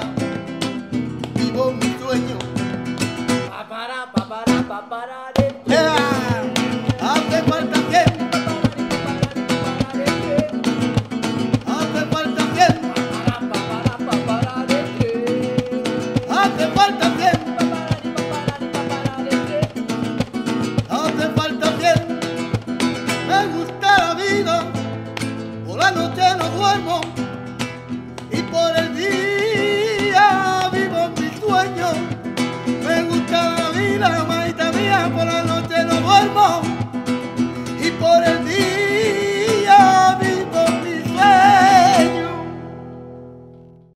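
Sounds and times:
nylon-string guitar strummed: 0:00.0 - 0:03.5, 0:05.4 - 0:43.9
men singing: 0:03.5 - 0:10.8, 0:11.6 - 0:20.1, 0:20.8 - 0:22.4, 0:23.2 - 0:24.8, 0:25.7 - 0:27.2, 0:28.3 - 0:36.9, 0:37.8 - 0:42.5.

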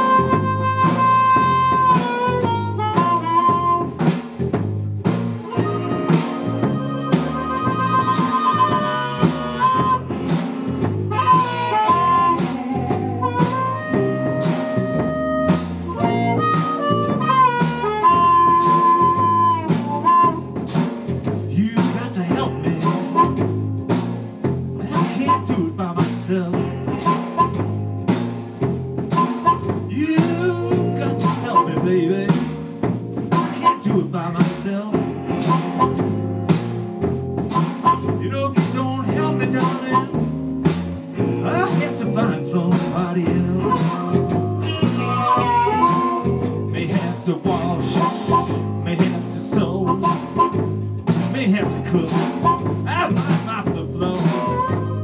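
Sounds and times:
blues harmonica: 0:00.0 - 0:55.0
steady drum beat: 0:00.0 - 0:55.0
walking bass line: 0:00.0 - 0:55.0.

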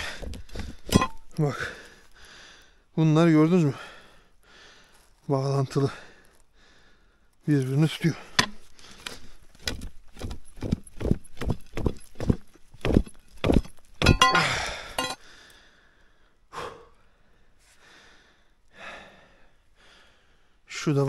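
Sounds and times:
footsteps on rocky ground: 0:00.0 - 0:01.5, 0:08.4 - 0:15.2.

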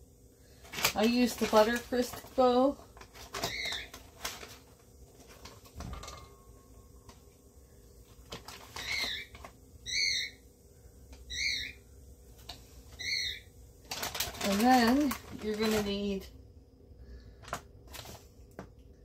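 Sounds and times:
bird calling: 0:03.4 - 0:04.0, 0:08.7 - 0:10.4, 0:11.3 - 0:11.8, 0:13.0 - 0:13.5.

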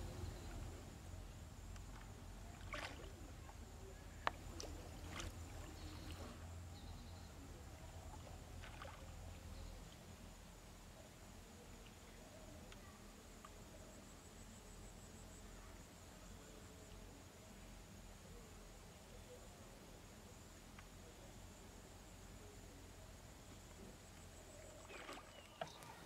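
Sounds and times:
water splashing and sloshing: 0:01.6 - 0:06.5, 0:07.8 - 0:09.6, 0:24.1 - 0:26.0.

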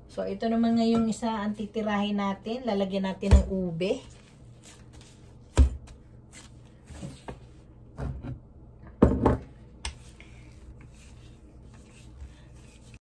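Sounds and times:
rolling pin rolling dough: 0:09.9 - 0:13.0.

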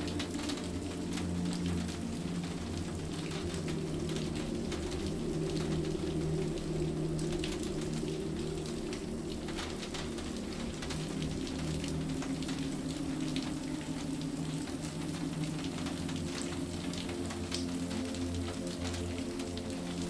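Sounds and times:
calm music with low held notes: 0:00.0 - 0:20.0
rain drops pattering: 0:00.0 - 0:20.0.

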